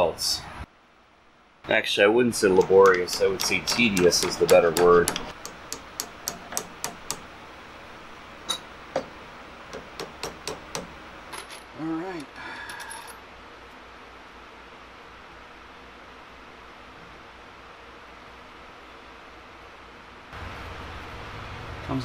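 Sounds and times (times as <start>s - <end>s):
hammer tapping on metal: 2.5s - 7.3s, 8.5s - 11.0s.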